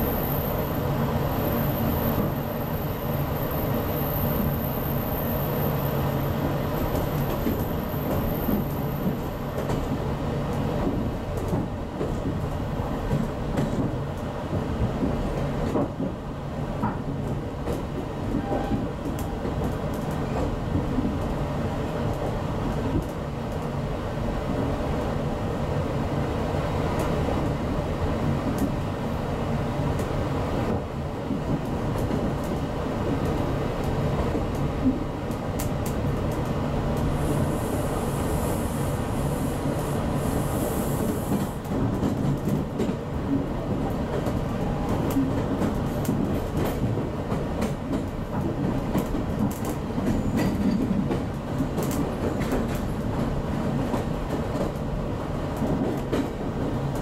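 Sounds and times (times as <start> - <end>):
train wheels rumbling on track: 0.0 - 57.0.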